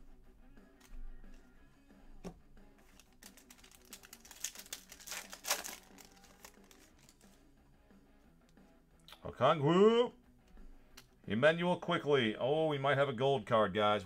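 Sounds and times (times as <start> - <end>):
foil wrapper crackling: 2.8 - 7.3.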